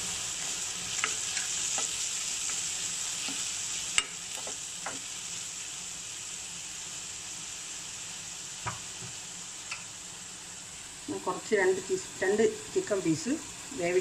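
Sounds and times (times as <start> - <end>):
vegetables sizzling in oil: 0.0 - 14.0
spatula tapping a pan: 4.0 - 5.0.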